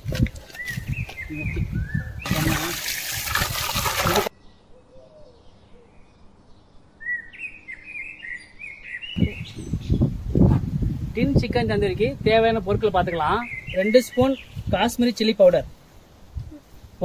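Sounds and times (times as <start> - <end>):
small birds chirping: 0.0 - 2.8, 4.3 - 10.3, 12.7 - 17.0
water sloshing in a metal pot: 2.2 - 4.3.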